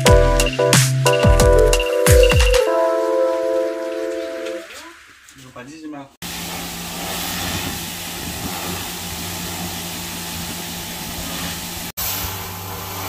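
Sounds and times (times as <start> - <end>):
pressure washer spray hissing: 6.2 - 13.0
pump motor humming: 6.2 - 13.0.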